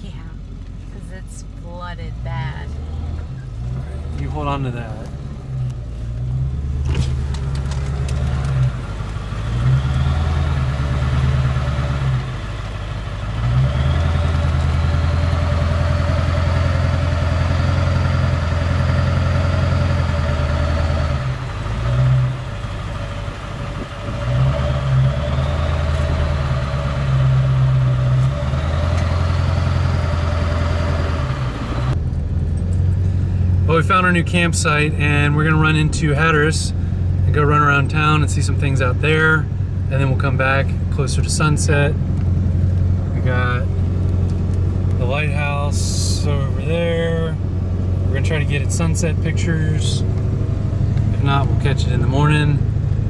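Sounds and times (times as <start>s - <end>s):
truck engine revving: 2.0s - 53.0s.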